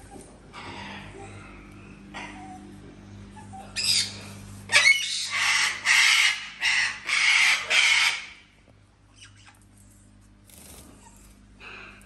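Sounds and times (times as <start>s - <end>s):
parrot squawking: 3.6s - 8.3s.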